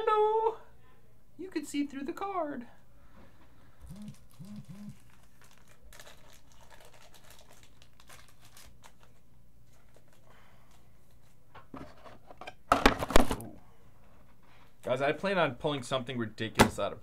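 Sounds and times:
packaging rustling: 3.8 - 11.4
packaging crinkling and tearing: 4.0 - 11.3.

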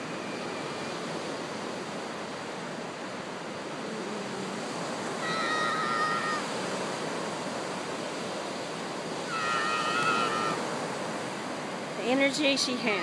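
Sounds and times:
ocean surf: 0.0 - 13.0
long high-pitched cries: 5.1 - 6.5, 9.2 - 10.6.

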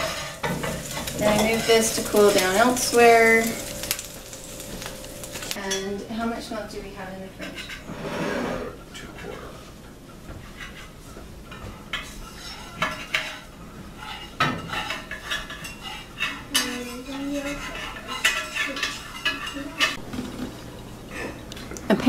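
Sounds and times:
metal spatula scraping skillet: 0.0 - 5.8, 7.4 - 9.7, 10.4 - 20.4
forks clinking on plates: 0.0 - 6.0, 14.0 - 20.4.

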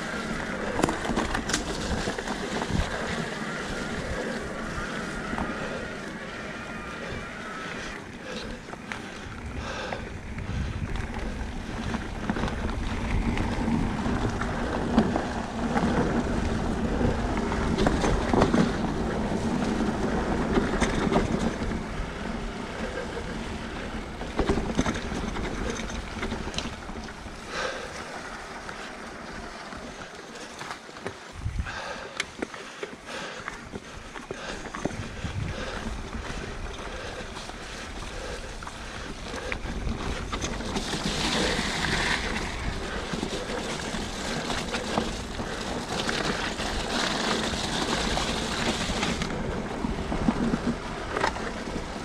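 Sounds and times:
wind buffeting microphone: 0.0 - 29.6, 31.3 - 32.0, 33.6 - 52.0
bike tyre rumble: 0.0 - 52.0
bike knocks and rattles: 0.2 - 3.3, 23.8 - 27.3.

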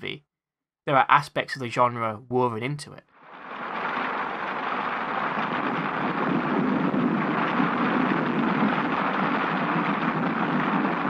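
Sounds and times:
wind: 3.2 - 11.0
heavy rain hissing: 3.3 - 11.0.

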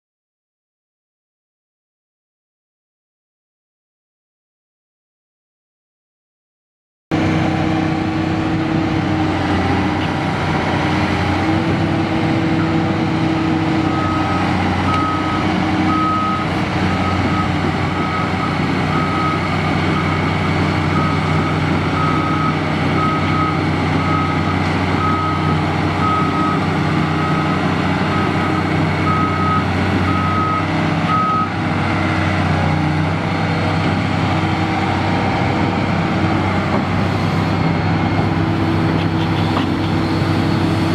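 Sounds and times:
excavator diesel engine running: 7.1 - 40.9
motion warning alarm beeping: 13.9 - 26.6, 27.2 - 31.5.

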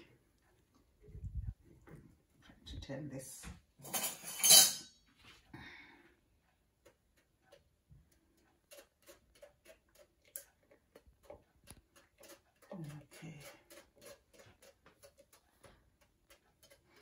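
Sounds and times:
metal spoon scraping mesh sieve: 3.9 - 4.8, 8.6 - 17.0.

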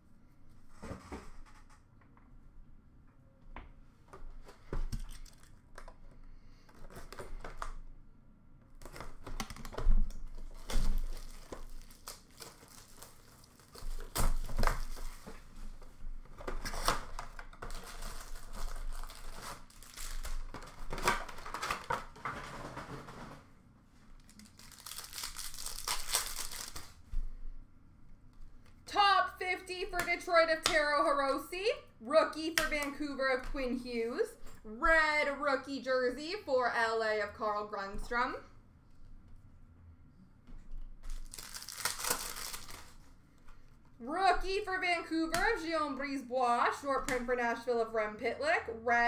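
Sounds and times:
plastic wrapping crinkling and tearing: 8.8 - 23.3, 24.1 - 27.0, 41.0 - 43.1.

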